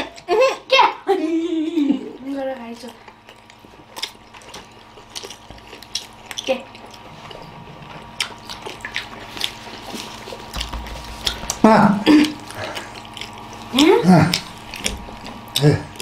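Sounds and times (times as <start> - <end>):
people chewing with mouths full: 1.8 - 16.0.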